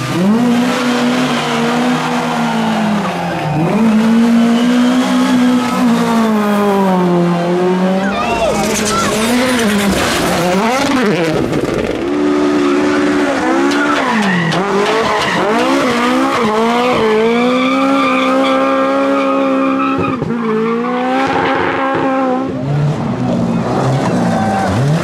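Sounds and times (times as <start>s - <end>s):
rally car engines revving: 0.0s - 25.0s.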